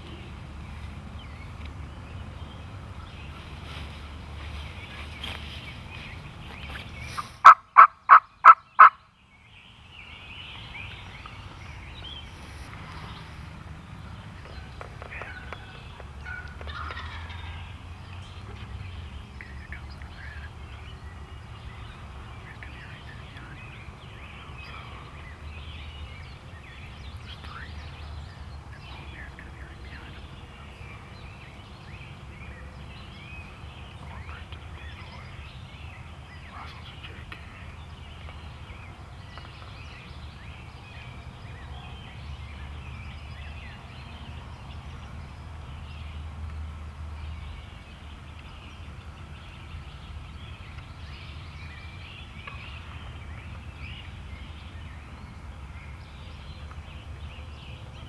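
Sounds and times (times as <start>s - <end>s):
turkeys clucking and yelping: 6.6s - 9.0s, 14.4s - 18.6s.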